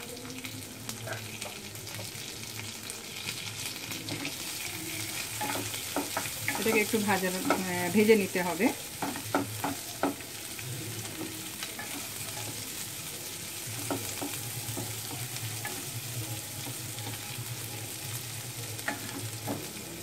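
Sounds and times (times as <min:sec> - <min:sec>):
onion and garlic sizzling in oil: 0:00.0 - 0:20.0
utensil tapping and scraping pan: 0:05.4 - 0:07.8, 0:09.0 - 0:10.3, 0:13.8 - 0:15.8, 0:18.8 - 0:19.8.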